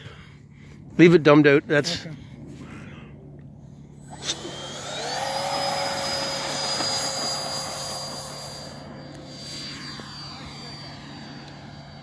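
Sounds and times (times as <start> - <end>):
electric ducted fan whine: 0.0 - 12.0.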